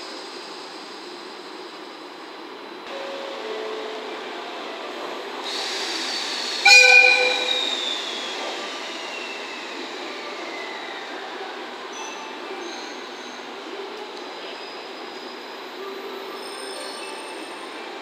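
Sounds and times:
locomotive air horn blast: 0:06.6 - 0:07.6.

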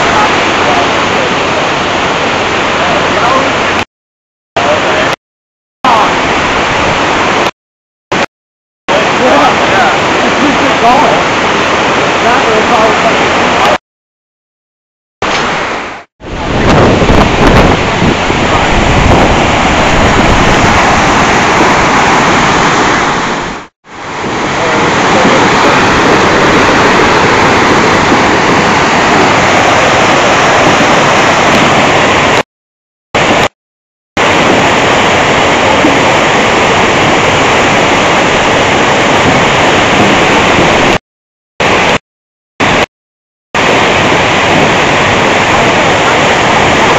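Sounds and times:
river rushing over rapids: 0:00.0 - 0:03.8, 0:04.6 - 0:05.2, 0:05.9 - 0:07.5, 0:08.9 - 0:13.8, 0:15.2 - 0:32.4, 0:33.2 - 0:33.5, 0:34.2 - 0:41.0, 0:41.6 - 0:42.0, 0:43.6 - 0:46.9.

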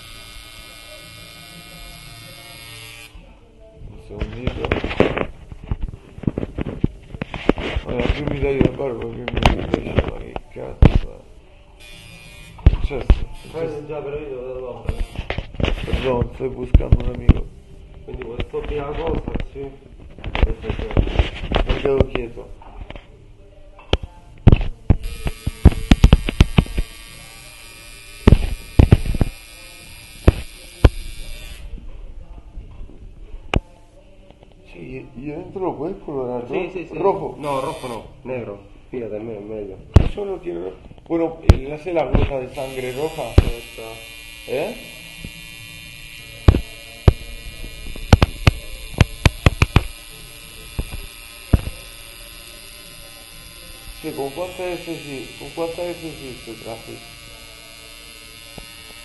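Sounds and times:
tattoo machine buzzing: 0:00.0 - 0:03.2, 0:11.8 - 0:14.1, 0:14.8 - 0:16.3, 0:25.0 - 0:31.7, 0:37.4 - 0:38.2, 0:42.2 - 0:59.0.

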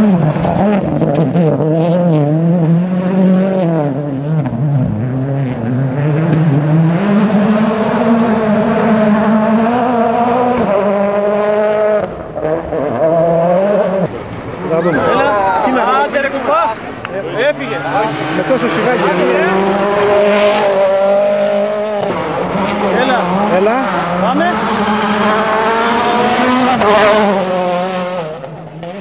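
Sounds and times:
rally car engine revving: 0:00.0 - 0:29.0.

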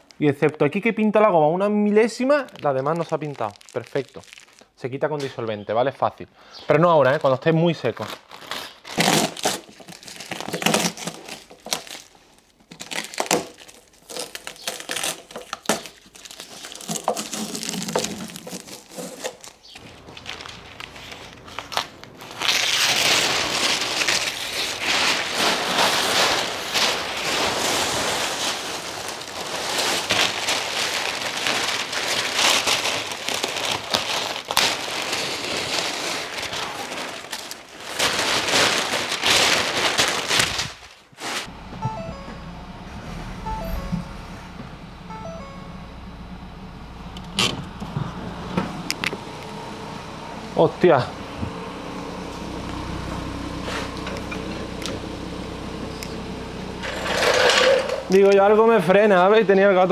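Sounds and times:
paper crinkling and crumpling: 0:01.8 - 0:05.5, 0:06.8 - 0:41.5
tape tearing off: 0:08.2 - 0:41.5.

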